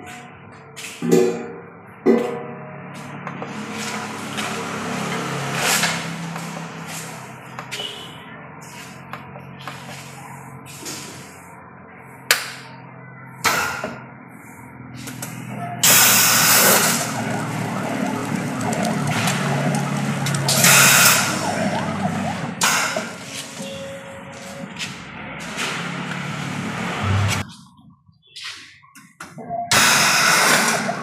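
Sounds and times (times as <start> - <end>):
machine humming: 15.8 - 23.2, 26.2 - 27.4.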